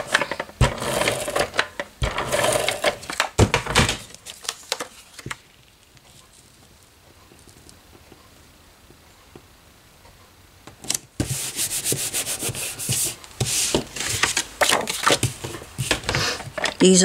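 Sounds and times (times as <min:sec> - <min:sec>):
paper handling: 0:00.0 - 0:06.5, 0:11.2 - 0:16.9.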